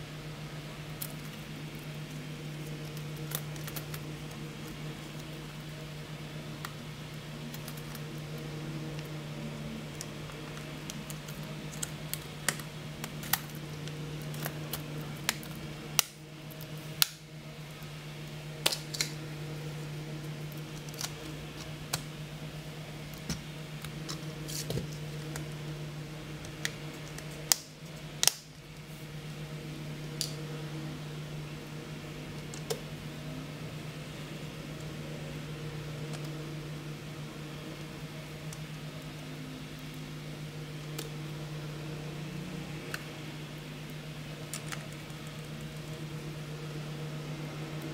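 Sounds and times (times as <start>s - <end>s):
steady low hum: 0.0s - 47.9s.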